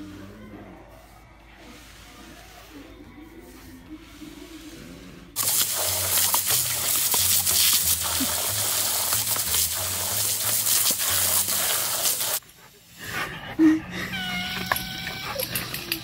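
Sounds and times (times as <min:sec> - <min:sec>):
hose water hissing and splashing: 0:05.4 - 0:12.4.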